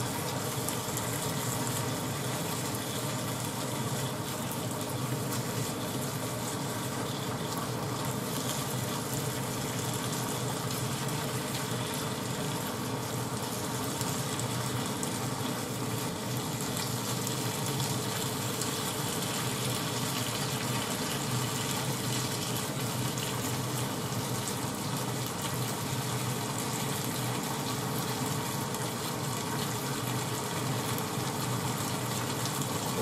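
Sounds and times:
meat and onions sizzling in a pan: 0.0s - 33.0s.

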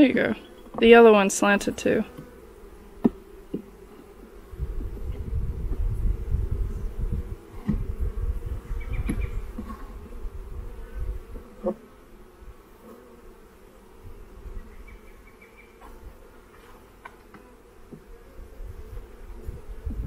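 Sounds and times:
honey bees buzzing: 0.0s - 20.0s
hive tool knocking wooden frames: 2.1s - 3.8s, 7.5s - 8.0s, 8.9s - 10.0s, 11.6s - 11.9s, 16.6s - 18.2s.

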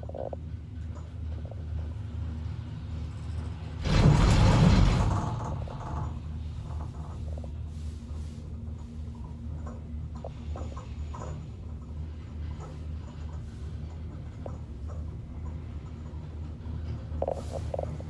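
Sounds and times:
cable car humming: 0.0s - 18.0s
rumble over roller sheaves: 0.0s - 18.0s.

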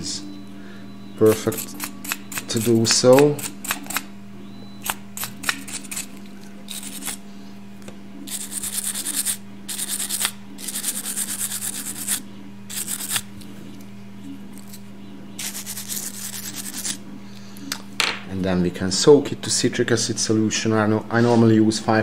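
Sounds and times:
steady low hum: 0.0s - 22.0s
wire brush scrubbing metal: 8.3s - 13.3s, 15.4s - 17.0s.

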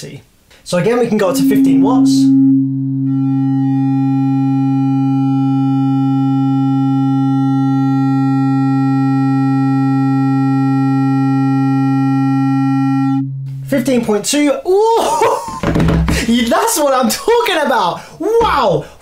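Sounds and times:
steady sine test tone: 0.7s - 15.2s.

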